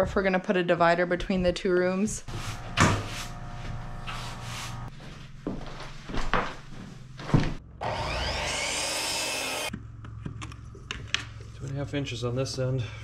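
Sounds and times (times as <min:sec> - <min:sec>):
power saw spinning: 0:07.8 - 0:09.7.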